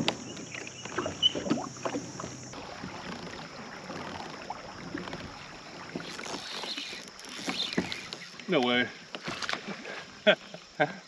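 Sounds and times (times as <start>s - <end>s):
knocks and rattles from boat: 0.0s - 9.9s
water washing along hull: 0.0s - 10.4s.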